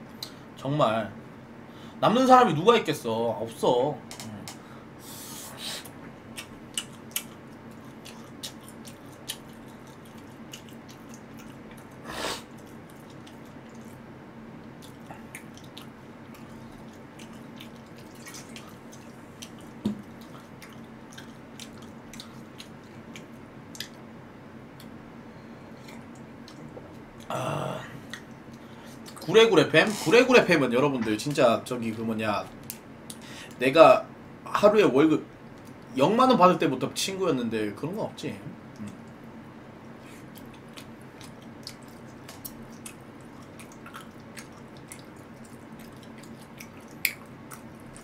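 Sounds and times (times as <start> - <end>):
low steady hum: 0.0 - 48.0
chewing: 6.3 - 14.0, 14.6 - 24.0, 25.7 - 27.3, 28.0 - 29.3, 39.9 - 48.0.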